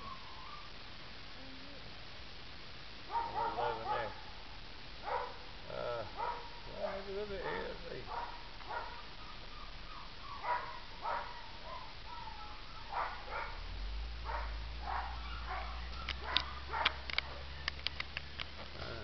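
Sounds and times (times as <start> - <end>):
puppy whining: 8.7 - 13.6
sharp clicks: 15.9 - 18.7.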